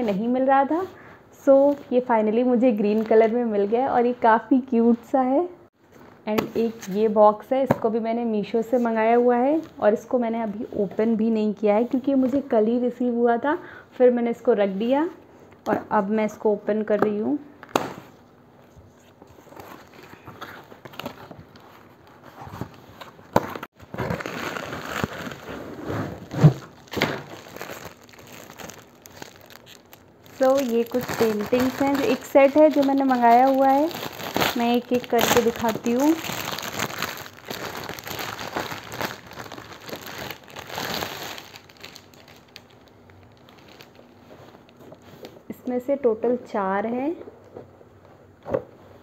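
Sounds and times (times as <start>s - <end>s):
cardboard flaps scraping and rustling: 19.1s - 27.9s
plastic packaging crinkling: 19.3s - 45.1s.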